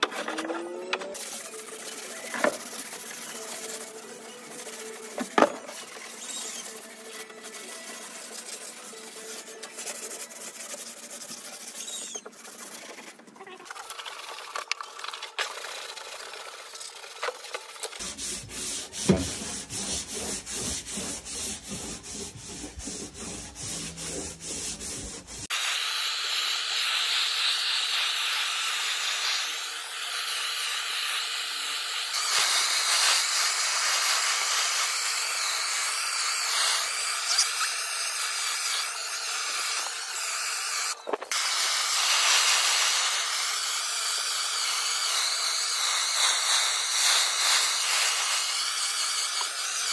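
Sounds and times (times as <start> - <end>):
sandpaper rubbing plywood: 0.0 - 14.1, 15.5 - 49.9
blowtorch hissing: 25.5 - 49.9.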